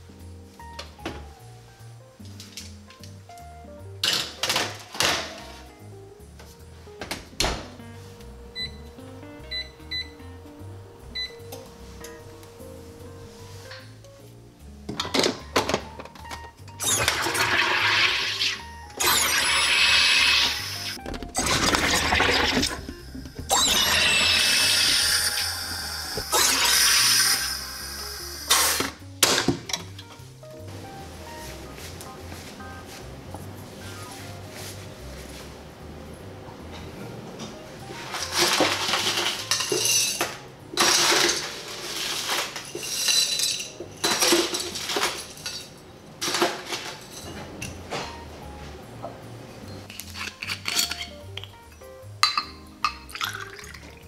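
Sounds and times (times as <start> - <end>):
soda maker hissing bursts: 16.8 - 29.0
ice rattling into glass: 38.1 - 47.3, 52.2 - 53.9.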